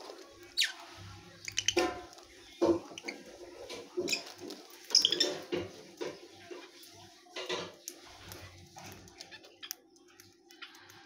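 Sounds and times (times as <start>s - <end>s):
birds pecking and rustling: 0.0s - 11.0s.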